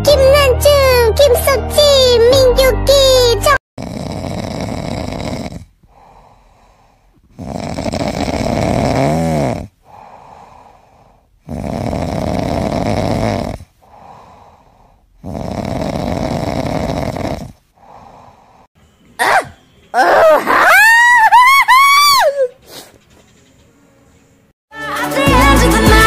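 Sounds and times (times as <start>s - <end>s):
cat snoring: 3.8s - 18.7s.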